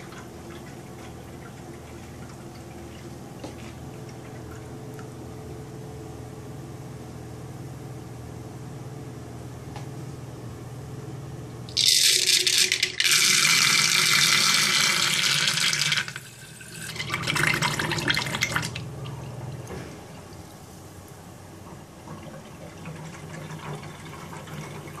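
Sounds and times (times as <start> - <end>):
sink draining with hissing slurp: 0.0 - 5.0, 11.8 - 20.8, 21.8 - 25.0
low steady hum: 0.0 - 25.0.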